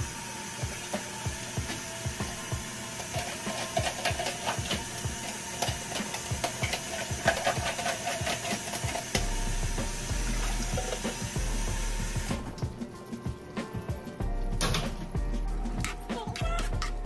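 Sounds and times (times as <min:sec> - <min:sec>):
steam hissing: 0:00.0 - 0:12.5.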